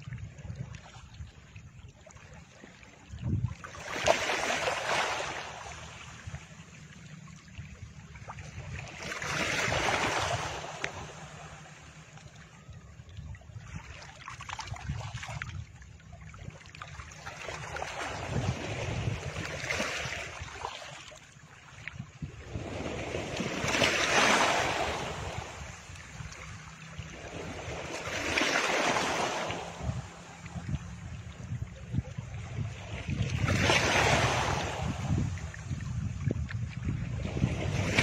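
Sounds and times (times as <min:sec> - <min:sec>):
steady low rumble: 0:29.6 - 0:33.5, 0:34.5 - 0:37.9.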